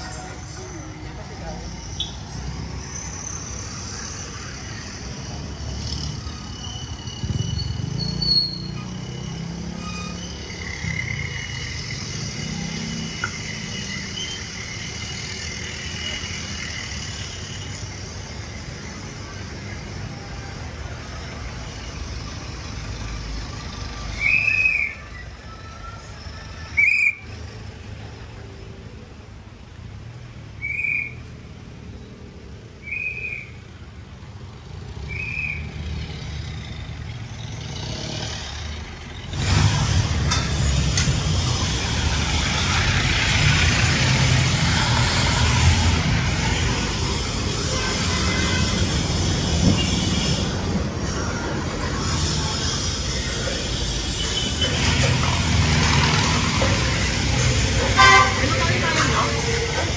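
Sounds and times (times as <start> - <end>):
street traffic engines rumbling: 0.0 - 59.9
high-pitched whistle blasts: 1.9 - 3.2, 24.1 - 25.8, 26.6 - 27.4, 30.6 - 31.4, 32.8 - 33.6, 35.1 - 35.8.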